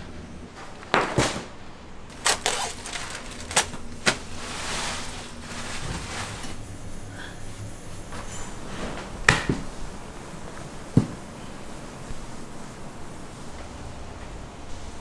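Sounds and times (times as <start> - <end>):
steady background hiss: 0.0 - 15.0
kitchen utensils clanking: 2.1 - 12.0.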